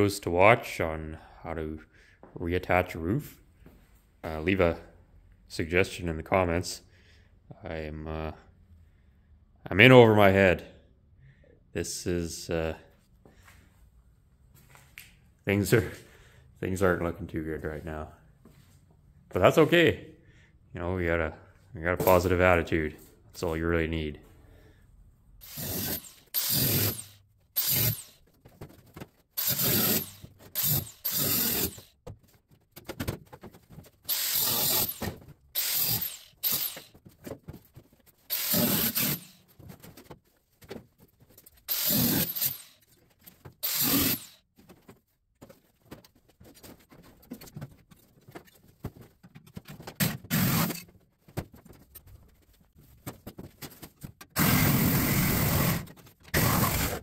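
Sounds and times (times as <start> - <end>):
metalworking on sheet steel: 25.4 - 28.2, 29.4 - 31.9, 34.1 - 37.0, 38.3 - 39.4, 41.7 - 42.9, 43.6 - 44.4.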